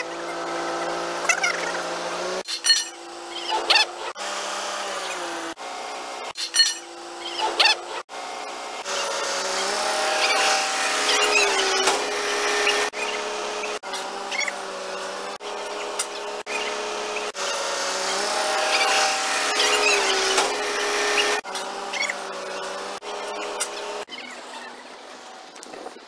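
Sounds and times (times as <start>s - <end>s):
crane engine and hydraulics whining: 0.0s - 26.0s
short high squeaks: 2.4s - 4.2s, 6.4s - 8.0s, 8.8s - 24.8s.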